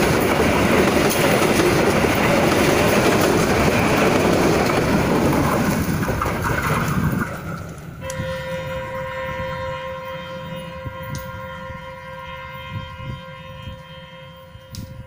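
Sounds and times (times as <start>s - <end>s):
train wheels rolling on rails: 0.0s - 15.0s
steady train horn: 8.0s - 15.0s.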